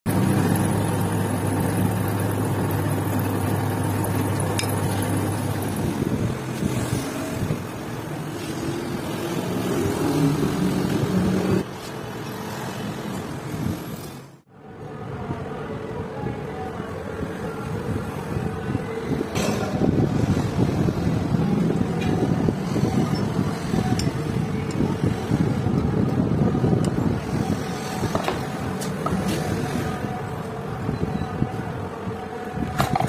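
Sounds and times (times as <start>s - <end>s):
metal lathe motor hum: 0.1s - 6.0s.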